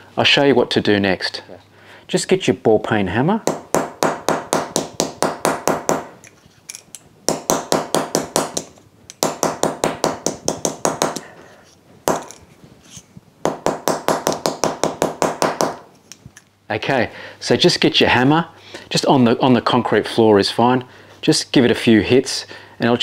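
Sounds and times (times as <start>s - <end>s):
hammer tapping wood: 3.4s - 6.1s, 7.3s - 11.3s, 12.1s - 12.3s, 13.4s - 15.8s.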